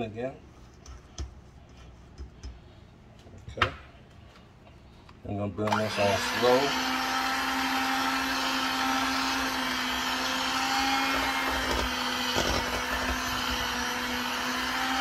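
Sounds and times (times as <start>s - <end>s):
blender motor humming: 5.7s - 15.0s.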